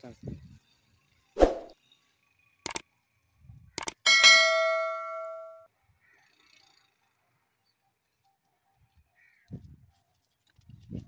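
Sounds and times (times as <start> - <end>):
mouse clicks: 3.8 - 4.0
bright bell ding: 4.1 - 5.7.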